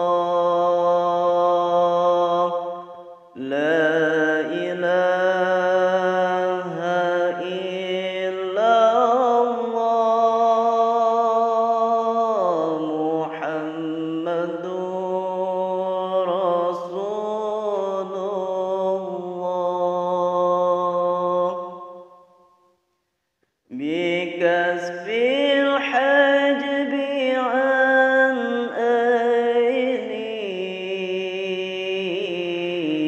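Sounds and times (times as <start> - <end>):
man singing devotional chant: 0.0 - 22.0, 23.7 - 33.0.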